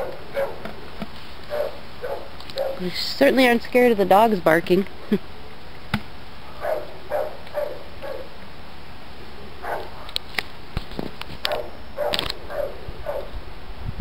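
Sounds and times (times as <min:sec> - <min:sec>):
dogs barking: 0:00.0 - 0:00.7, 0:01.5 - 0:02.8, 0:06.4 - 0:08.4, 0:09.6 - 0:10.2, 0:11.4 - 0:13.4.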